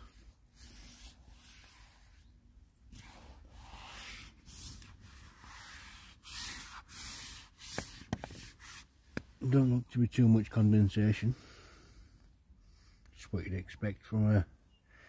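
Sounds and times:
fabric rustling and rubbing: 0:02.9 - 0:09.0.

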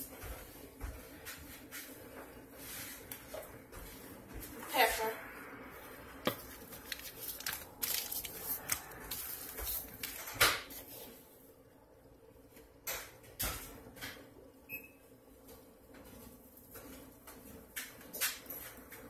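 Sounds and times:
fish fillets rustling on paper: 0:06.4 - 0:11.1.

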